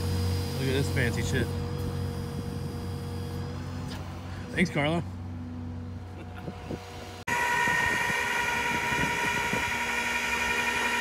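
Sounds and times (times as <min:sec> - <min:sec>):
tow truck engine hum: 0:00.0 - 0:07.2
hydraulic winch whining: 0:07.3 - 0:11.0.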